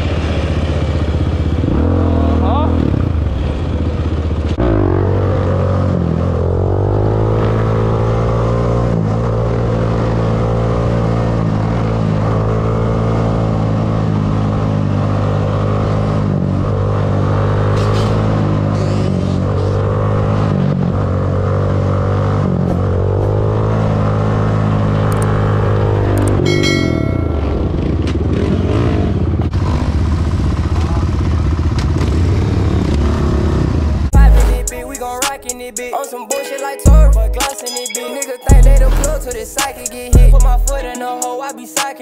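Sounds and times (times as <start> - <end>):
two-stroke engine idling: 29.8 - 32.6.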